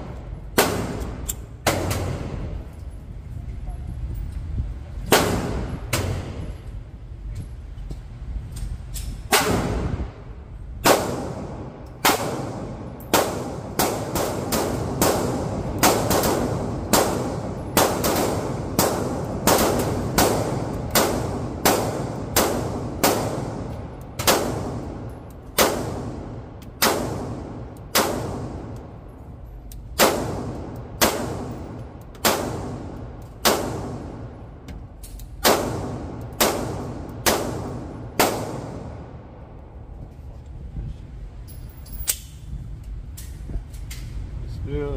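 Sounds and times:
pistol shots echoing indoors: 0:00.0 - 0:02.6, 0:05.0 - 0:06.4, 0:09.3 - 0:39.7.

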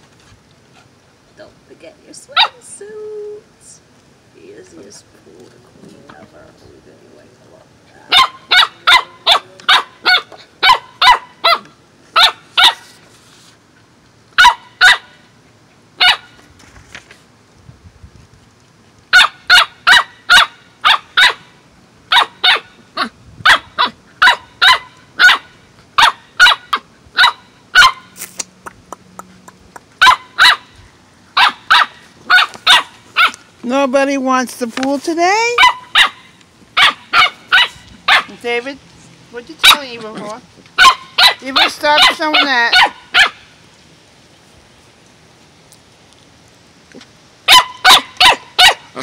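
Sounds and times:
puppy barking high-pitched: 0:02.4 - 0:02.6, 0:08.1 - 0:12.9, 0:14.4 - 0:15.2, 0:16.0 - 0:16.4, 0:19.1 - 0:21.5, 0:22.1 - 0:28.2, 0:30.0 - 0:33.4, 0:35.6 - 0:38.4, 0:39.6 - 0:39.9, 0:40.8 - 0:43.4, 0:47.4 - 0:49.0.

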